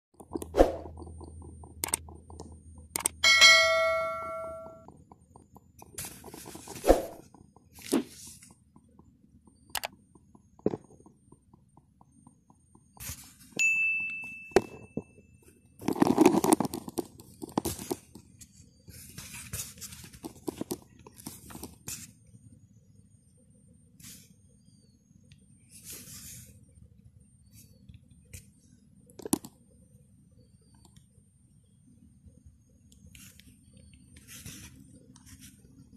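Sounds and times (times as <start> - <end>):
bell-like ding: 3.2 - 4.9, 13.6 - 15.2.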